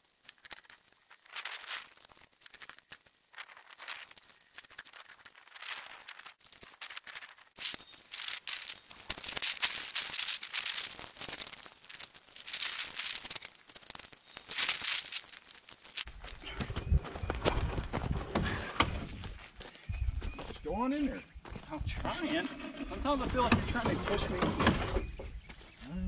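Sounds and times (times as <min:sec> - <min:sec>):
footsteps crunching on gravel: 0:00.0 - 0:22.5, 0:25.4 - 0:26.0
wooden trusses scraping: 0:22.1 - 0:25.3.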